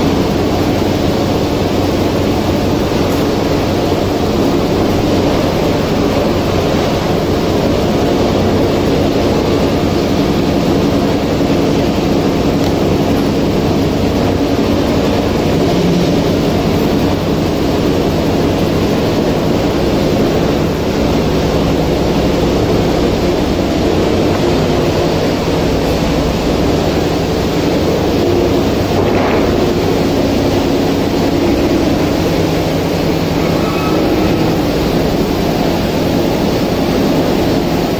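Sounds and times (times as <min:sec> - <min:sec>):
factory machinery running: 0:00.0 - 0:37.9.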